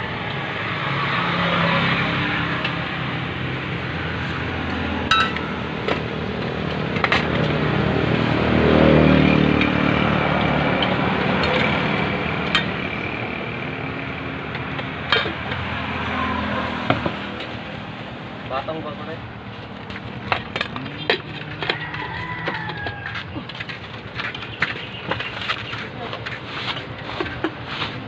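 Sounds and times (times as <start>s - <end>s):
traffic rumble: 0.0s - 28.0s
metal spoon clinking on steel: 5.1s - 5.5s.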